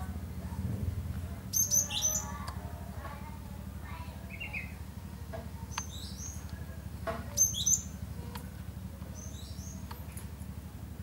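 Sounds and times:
songbird chirping: 0:01.4 - 0:02.6, 0:04.2 - 0:10.2.

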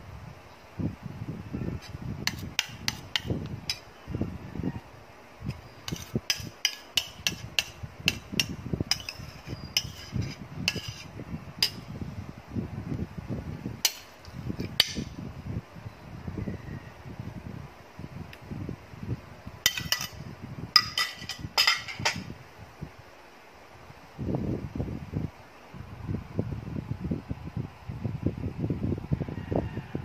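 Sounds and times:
utensil clicking on glass dish: 0:05.9 - 0:09.2.

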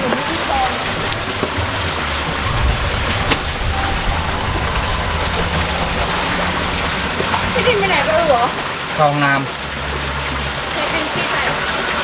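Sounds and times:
low hum: 0:00.2 - 0:09.0.

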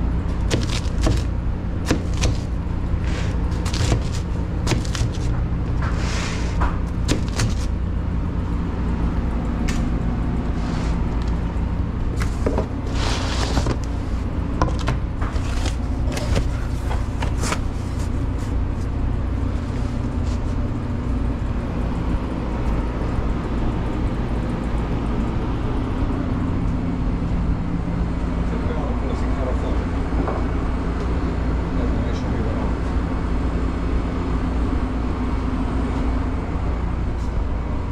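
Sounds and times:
kitchen machinery hum: 0:00.0 - 0:37.9
knife cutting pizza: 0:00.4 - 0:07.8, 0:12.2 - 0:18.9
cardboard boxes handled and closed: 0:12.2 - 0:14.0, 0:14.6 - 0:18.6.

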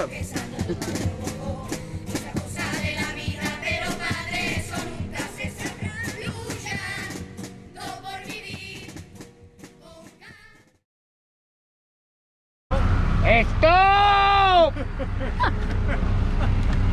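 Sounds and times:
children singing over instruments: 0:00.0 - 0:09.0.

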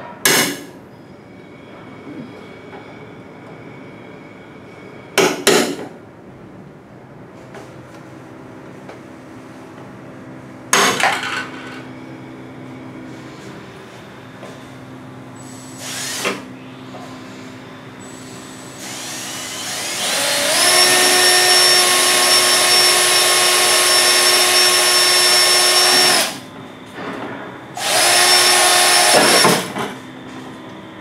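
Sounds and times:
cordless drill boring aluminium: 0:15.8 - 0:16.4, 0:18.8 - 0:26.4, 0:27.8 - 0:29.7.

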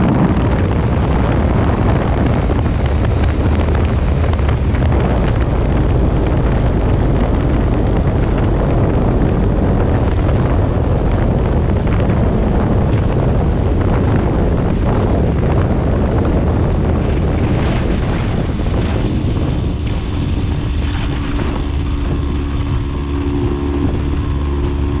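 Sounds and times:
aircraft engine and propeller drone: 0:00.0 - 0:25.0
wind buffeting microphone: 0:00.0 - 0:25.0.

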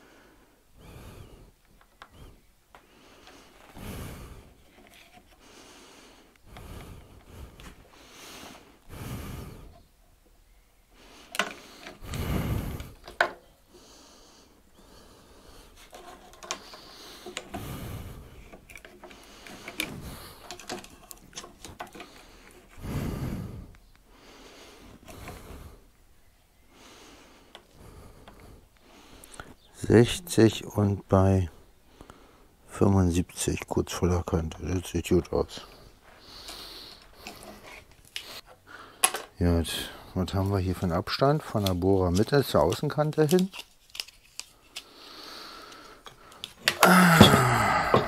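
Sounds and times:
person breathing through nose: 0:00.0 - 0:04.7, 0:05.3 - 0:09.9, 0:10.9 - 0:13.0, 0:13.6 - 0:21.0, 0:21.8 - 0:25.9, 0:26.6 - 0:29.7, 0:35.6 - 0:39.1, 0:44.5 - 0:48.0.

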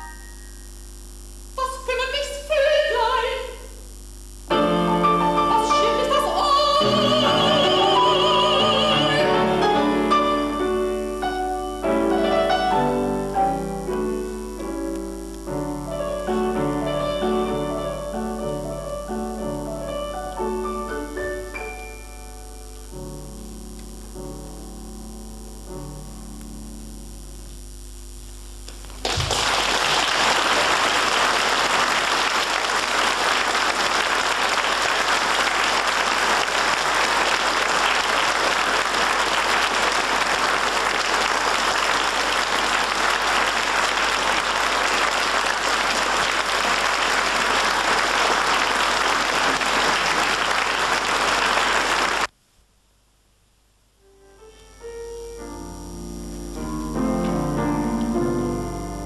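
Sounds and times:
audience applause: 0:28.9 - 0:52.3
piano notes: 0:54.1 - 0:59.0.

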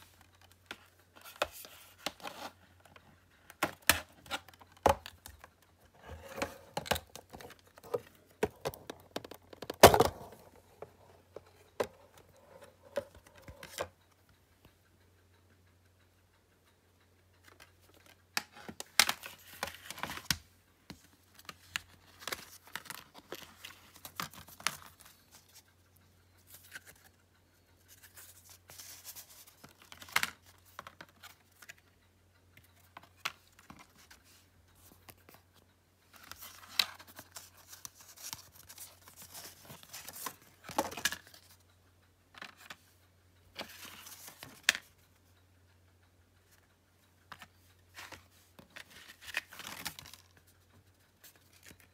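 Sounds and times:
packaging clicks and taps: 0:03.5 - 0:14.0, 0:17.5 - 0:25.6, 0:36.2 - 0:41.6, 0:47.3 - 0:50.3.

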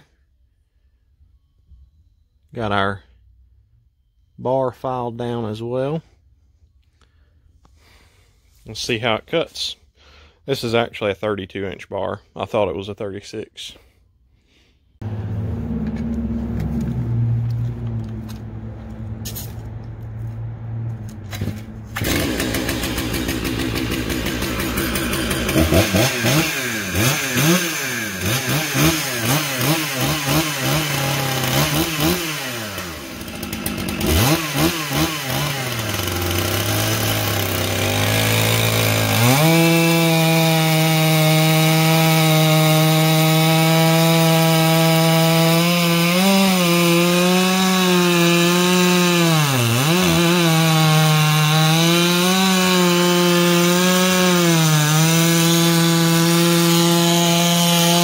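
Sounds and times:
chainsaw cutting log: 0:21.3 - 0:58.0
chainsaw revving: 0:21.4 - 0:58.0.

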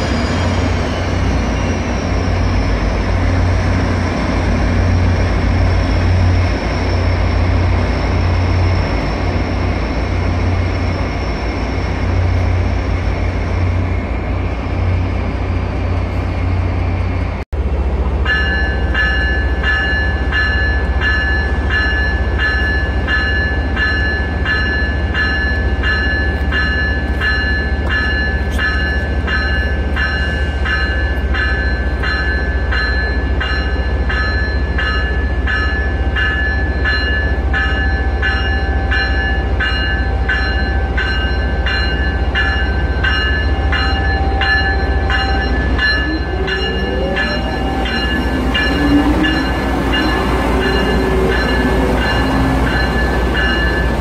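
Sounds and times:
locomotive bell ringing: 0:18.2 - 0:54.0
rising whine: 0:43.7 - 0:54.0.

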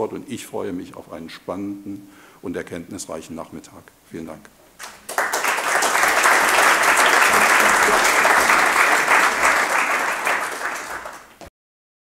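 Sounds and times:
audience applauding: 0:04.8 - 0:11.5.

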